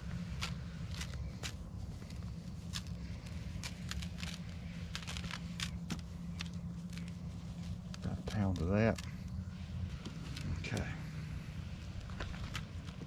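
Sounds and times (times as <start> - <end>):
light ticks and rustles: 0.0 - 11.2, 11.8 - 13.0
steady low hum: 0.0 - 13.0.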